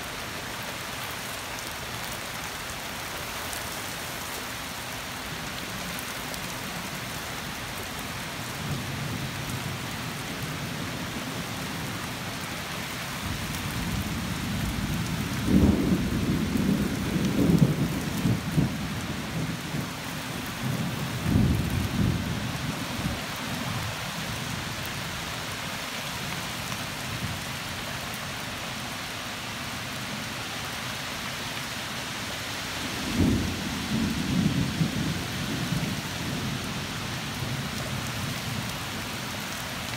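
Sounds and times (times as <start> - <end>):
steady rain falling: 0.0 - 39.9
thunder rumbling: 13.8 - 19.9.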